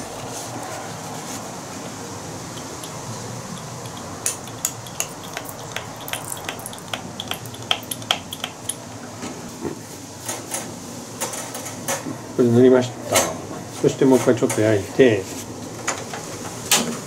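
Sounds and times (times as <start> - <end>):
metal clicks and clinks: 2.6 - 8.8.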